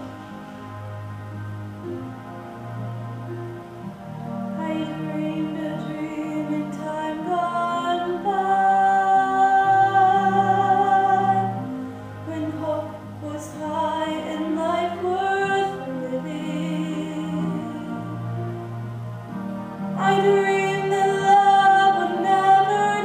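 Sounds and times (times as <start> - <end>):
soft sustained accompaniment: 0.0 - 23.0
woman singing slow melody: 4.6 - 18.6, 20.0 - 23.0.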